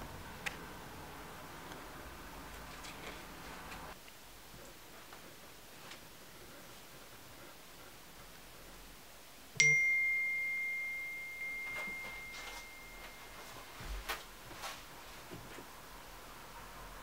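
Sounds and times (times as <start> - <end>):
bright bell ding: 9.6 - 13.6
soft footsteps: 11.6 - 15.7.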